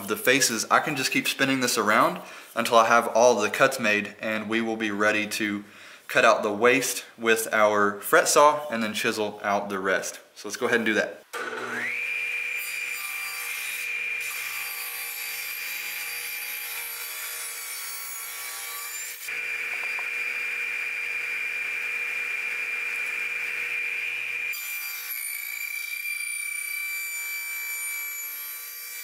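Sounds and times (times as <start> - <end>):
table saw whining: 11.4 - 29.0.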